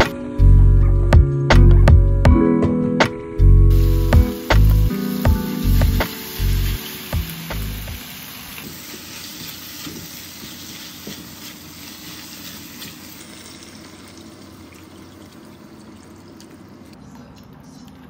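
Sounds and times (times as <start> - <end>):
vegetables sizzling in a wok: 3.7 - 15.7
water pouring from kettle: 11.8 - 17.0.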